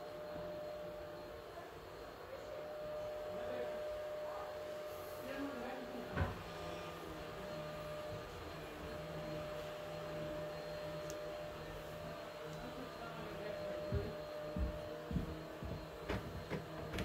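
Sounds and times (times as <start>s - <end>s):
electrical hum: 0.0s - 17.0s
soft low thumps: 13.8s - 16.4s.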